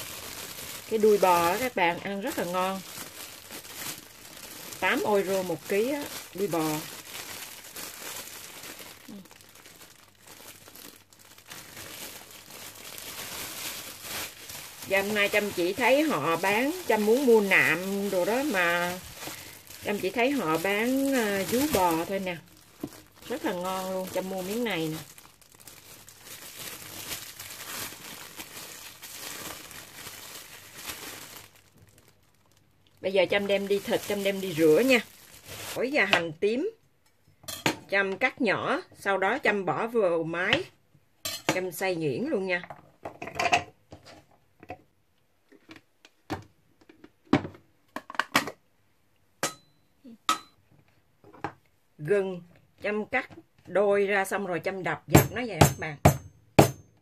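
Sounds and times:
plastic bag crinkling: 0:00.0 - 0:36.0.

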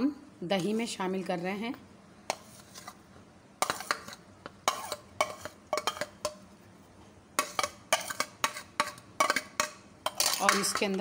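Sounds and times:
metal spoon scraping a plate: 0:02.3 - 0:03.0, 0:03.6 - 0:06.4, 0:07.4 - 0:11.0.

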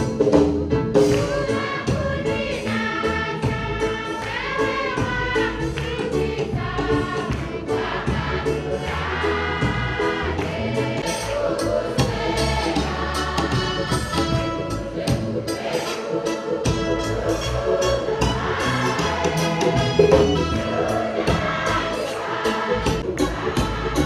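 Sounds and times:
choir and congregation singing hymn: 0:00.0 - 0:24.0
hand-clapping: 0:05.7 - 0:06.1, 0:07.2 - 0:07.6.

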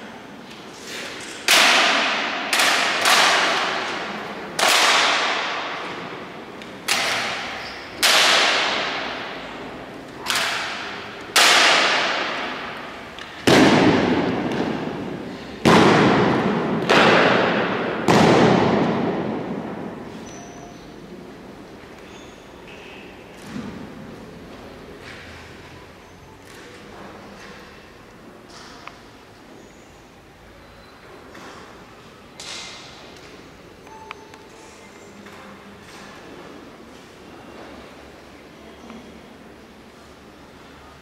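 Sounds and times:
rifle slaps and knocks echoing: 0:01.4 - 0:06.2, 0:06.8 - 0:09.4, 0:10.2 - 0:19.9.

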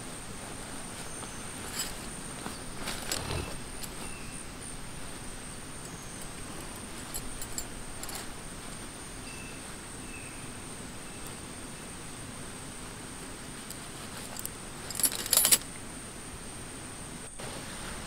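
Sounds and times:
tent fabric rustling: 0:00.0 - 0:09.8, 0:13.2 - 0:15.6
insects droning: 0:00.0 - 0:18.0.

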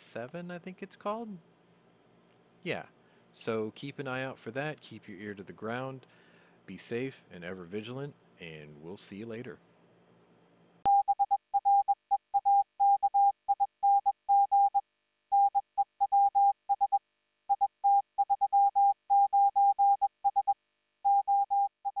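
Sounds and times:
morse code beeps: 0:10.9 - 0:14.8, 0:15.4 - 0:22.0.

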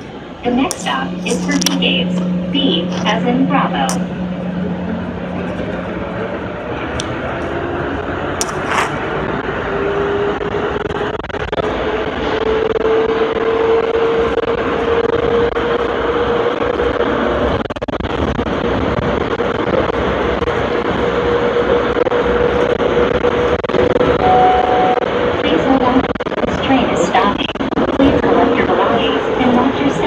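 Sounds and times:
train running rumble: 0:00.0 - 0:30.0.

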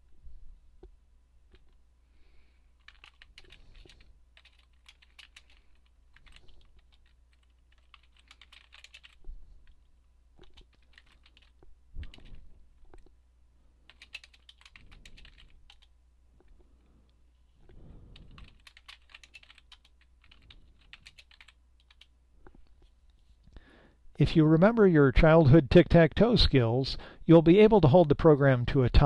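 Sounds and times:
faint low hum: 0:00.0 - 0:29.0
keyboard typing: 0:02.8 - 0:13.1, 0:13.8 - 0:16.5, 0:17.6 - 0:22.6.

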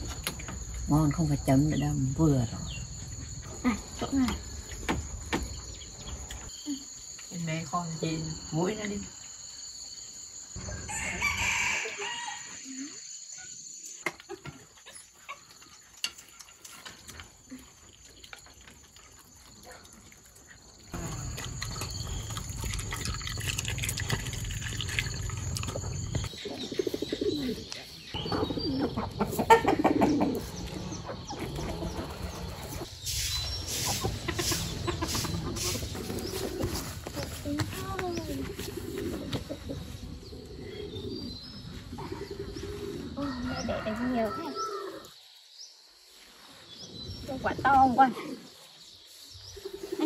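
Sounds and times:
small birds chirping: 0:00.0 - 0:10.6, 0:12.7 - 0:50.0
dog lapping water: 0:21.0 - 0:26.2
hens clucking: 0:25.8 - 0:32.9, 0:33.6 - 0:37.4, 0:38.0 - 0:41.0.

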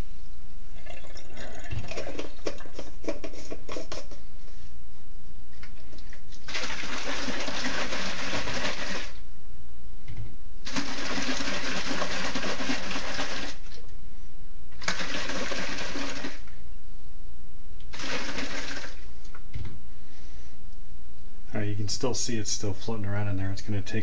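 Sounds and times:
liquid sloshing in plastic jar: 0:00.8 - 0:04.2
powder rattling in jar: 0:10.7 - 0:13.6.

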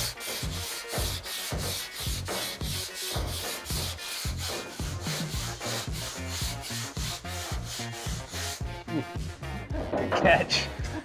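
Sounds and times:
sandpaper scraping sheet steel: 0:00.0 - 0:09.2.

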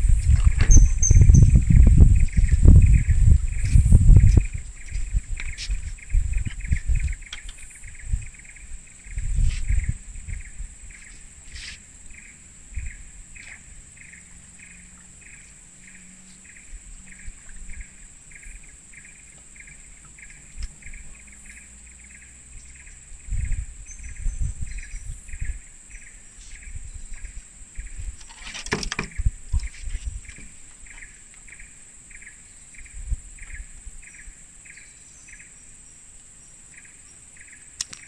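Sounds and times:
low rumbling bursts: 0:00.0 - 0:07.2
regular chirping: 0:00.4 - 0:28.0.

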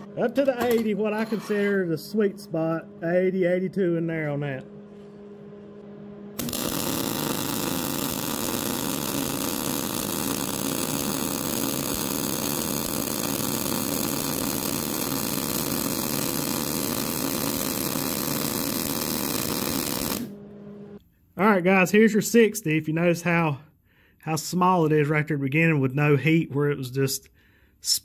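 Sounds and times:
welding arc buzzing: 0:06.3 - 0:20.5.

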